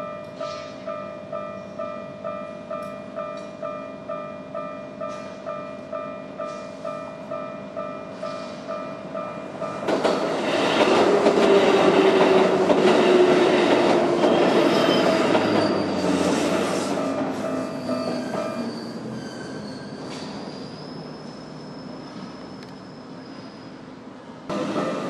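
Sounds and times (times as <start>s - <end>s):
crossing warning bell ringing: 0.0s - 10.1s, 16.9s - 19.6s
train wheels on rails: 5.0s - 5.6s, 6.3s - 23.8s, 24.5s - 25.0s
high wheel squeals: 14.2s - 23.9s.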